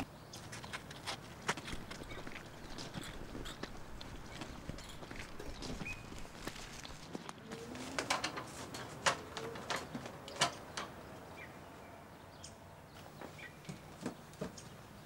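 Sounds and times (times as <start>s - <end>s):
paper rustling: 4.1s - 9.7s.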